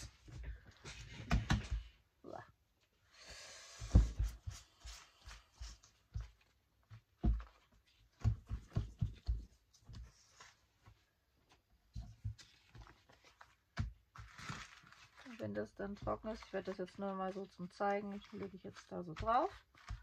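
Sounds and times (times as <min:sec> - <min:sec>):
soft thumps on paper: 0:03.8 - 0:14.3
cloth rubbing paper: 0:12.4 - 0:20.0.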